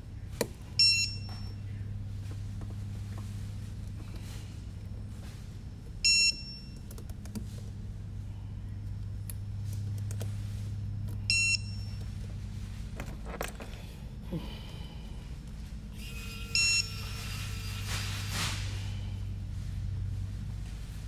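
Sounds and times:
low hum: 0.0 - 21.0
short high electronic beeps: 16.0 - 17.9.

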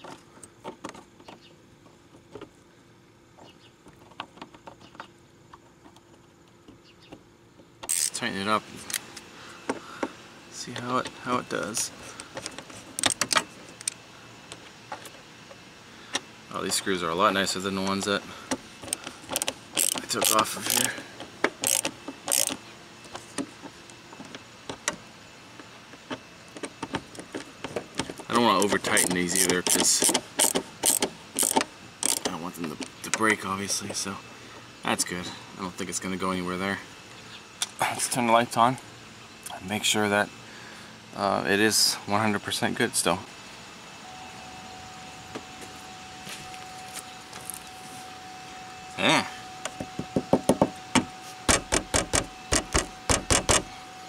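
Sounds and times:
screwdriver ratcheting: 7.9 - 8.2, 18.9 - 22.6, 28.5 - 32.4.

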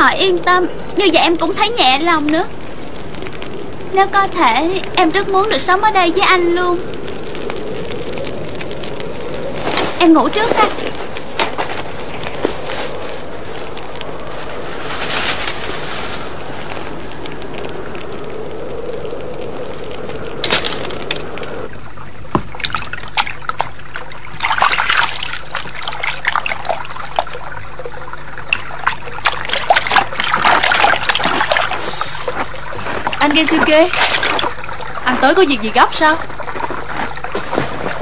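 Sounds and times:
steady hiss: 0.0 - 38.0
hands washing in running water: 22.4 - 38.0.

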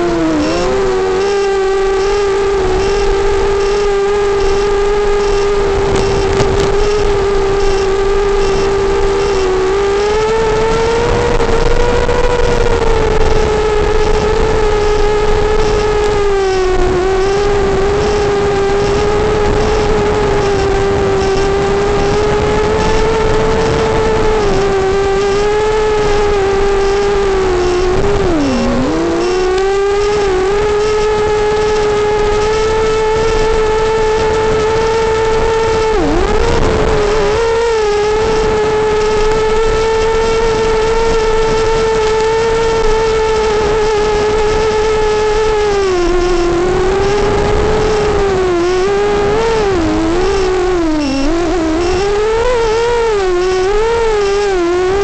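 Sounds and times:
quadcopter motors whining: 0.0 - 55.0.

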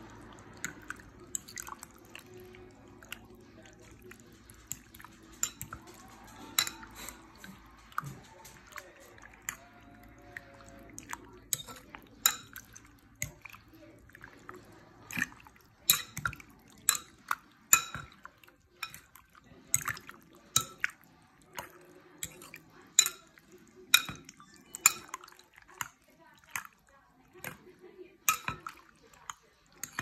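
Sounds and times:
wet liquid stirring: 0.0 - 30.0
fork clinking against bowl: 4.5 - 9.7, 11.5 - 13.4, 15.2 - 20.9, 22.2 - 25.2, 28.3 - 30.0.

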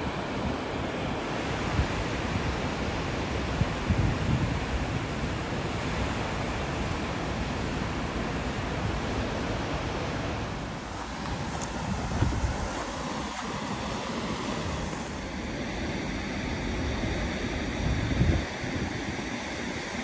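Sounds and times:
wind buffeting microphone: 3.5 - 5.1, 10.7 - 15.5, 17.0 - 19.5
fast river flowing: 9.2 - 15.5.

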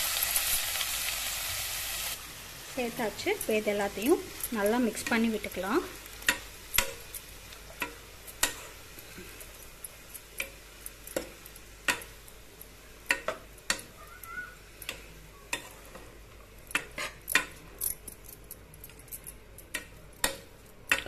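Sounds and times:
vegetables sizzling in oil: 0.0 - 17.6
ladle scraping a pan: 16.8 - 17.4.

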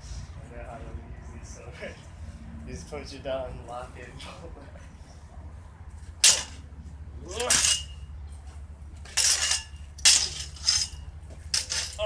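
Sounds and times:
metal swords clashing: 6.2 - 6.6, 7.3 - 8.1, 9.1 - 12.0.

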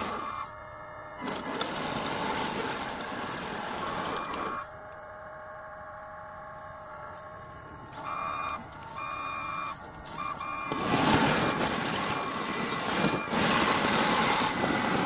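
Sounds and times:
motor and pump humming: 0.0 - 15.0
rough mechanical noise: 0.0 - 15.0
thin high squeal: 9.0 - 15.0.

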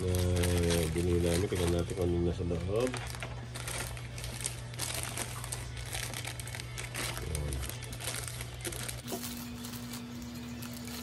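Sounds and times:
plastic mailer bag crinkling: 0.0 - 11.0
scissors cutting plastic: 4.1 - 11.0.

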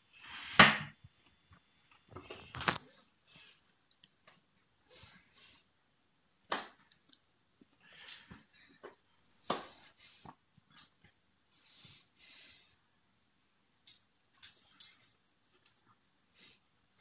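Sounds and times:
soft breathy hiss: 1.5 - 6.1, 7.0 - 17.0
hands slapping and brushing: 6.5 - 7.1, 8.1 - 10.4.

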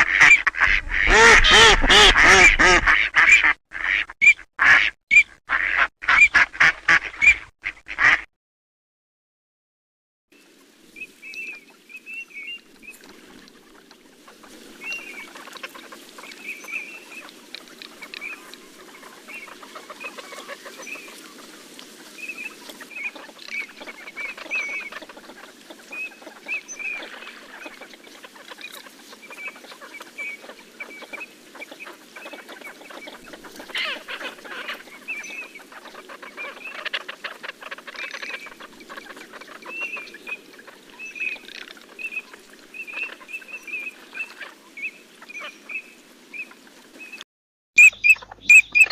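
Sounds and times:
high whistled duck calls: 0.0 - 8.2, 47.8 - 48.9.

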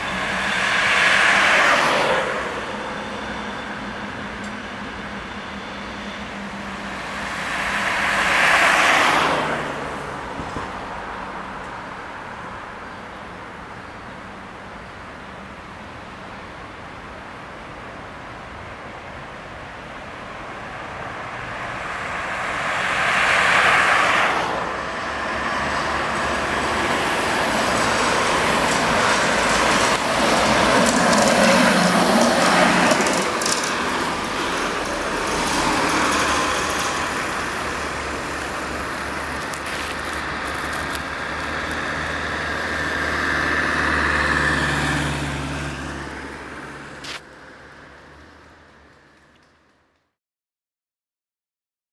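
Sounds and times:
tram wheel and motor noise: 0.0 - 11.8, 20.3 - 49.6
cars passing: 0.0 - 14.5, 19.3 - 49.3.

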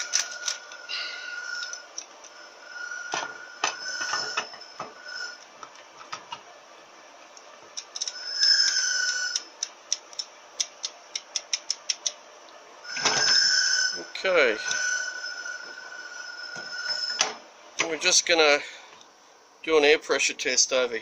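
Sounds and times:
steel parts clinking and scraping: 0.0 - 0.8, 1.4 - 2.5
ringing metal scrape: 0.1 - 5.4, 12.9 - 17.4.

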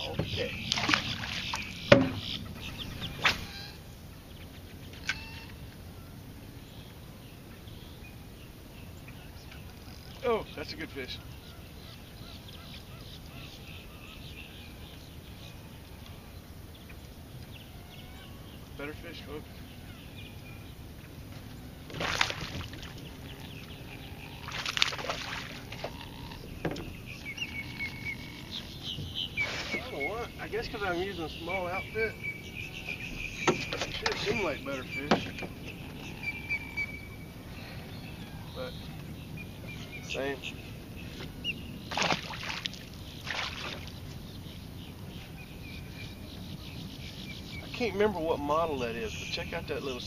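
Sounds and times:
small birds chirping: 0.0 - 50.0
fish splashing at surface: 21.9 - 23.0, 24.5 - 25.9, 41.9 - 44.0.

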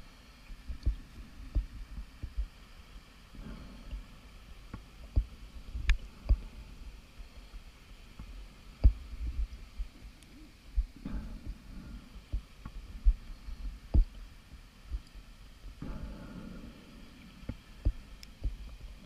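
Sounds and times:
low steady rumble: 0.0 - 19.0
muffled underwater knocks and clicks: 0.6 - 2.6, 3.3 - 19.0.

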